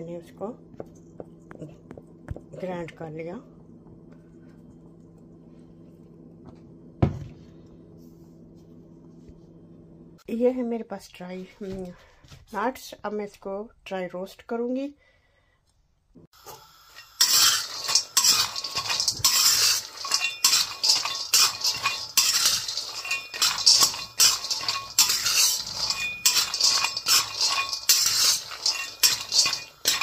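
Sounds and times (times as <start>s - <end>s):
nuts rattling in metal pan: 17.0s - 30.0s
spatula scraping pan: 17.0s - 30.0s.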